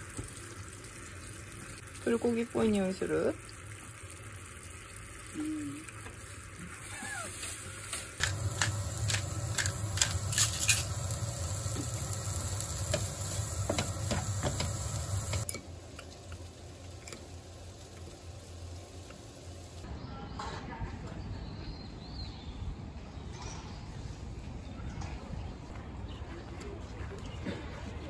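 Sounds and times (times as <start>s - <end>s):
carrots sizzling in a frying pan: 6.7s - 19.8s.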